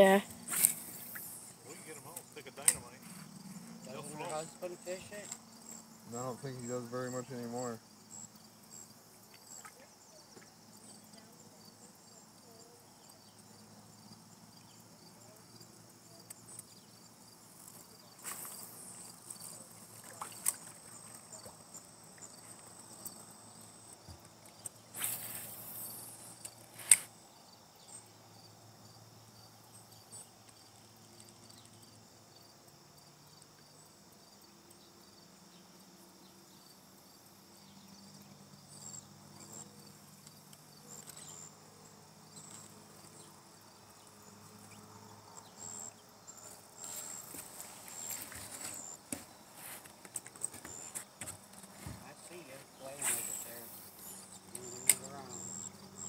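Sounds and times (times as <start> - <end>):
crickets chirring: 0.0 - 56.0
short hissing rushes: 0.4 - 2.0, 24.9 - 27.2.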